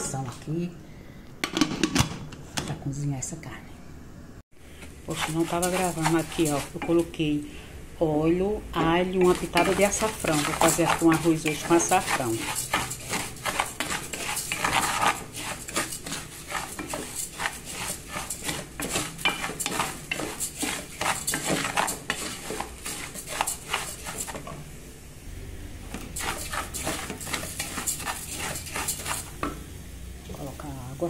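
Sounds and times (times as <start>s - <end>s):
rice sizzling in oil: 4.7s - 7.8s, 8.4s - 31.0s
wooden spoon scraping metal pot: 4.8s - 7.3s, 8.6s - 24.7s, 25.9s - 29.6s.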